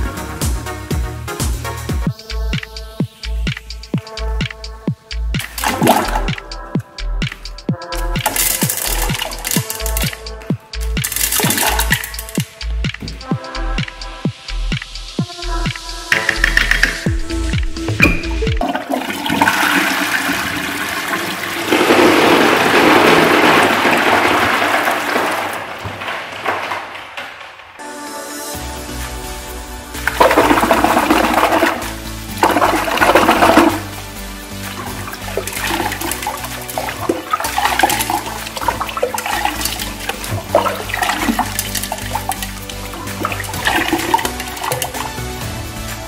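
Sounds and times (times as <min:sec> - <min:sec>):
electronic music: 0:00.0 - 0:24.2, 0:27.8 - 0:46.0
toilet flushing: 0:05.4 - 0:06.4, 0:18.4 - 0:26.5, 0:30.0 - 0:45.6
water pouring off hand: 0:30.1 - 0:45.3.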